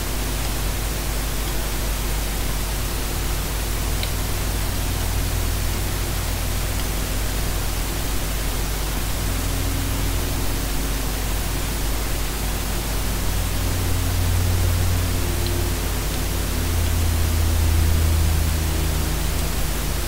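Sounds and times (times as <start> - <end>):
constant low hum: 0.0 - 20.0.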